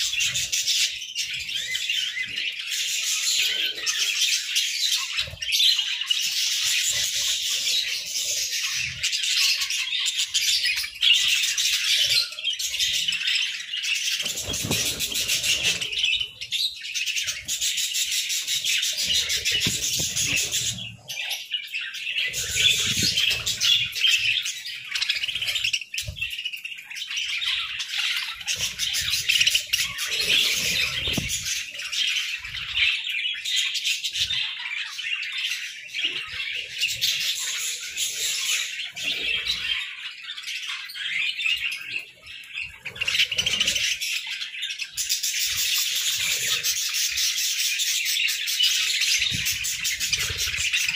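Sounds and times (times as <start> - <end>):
budgerigars chattering and chirping: 0.0 - 50.9
wings fluttering: 14.1 - 16.4, 18.5 - 20.9.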